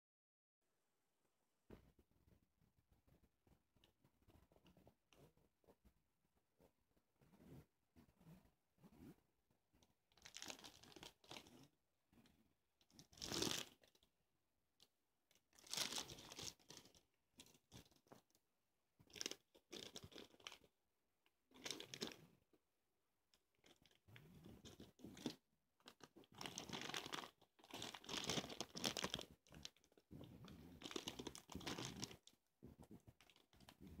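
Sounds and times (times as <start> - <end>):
plastic bags crinkling: 15.6 - 17.0, 21.6 - 22.2, 24.6 - 30.0, 30.8 - 32.3.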